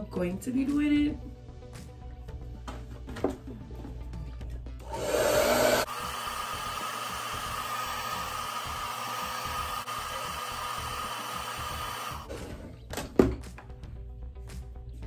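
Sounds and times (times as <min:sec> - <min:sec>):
hair dryer whirring: 0:04.8 - 0:12.4.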